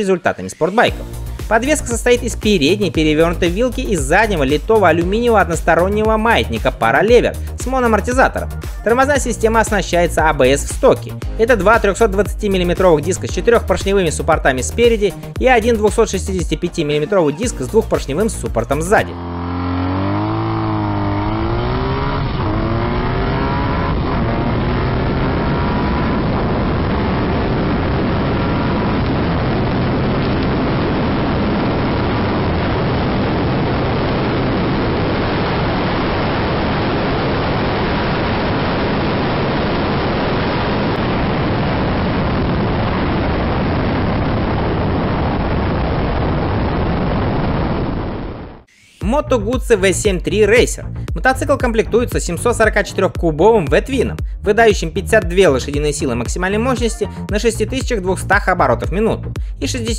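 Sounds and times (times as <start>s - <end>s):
motorcycle accelerating through gears: 19.0s - 29.8s
wind rush: 19.9s - 48.7s.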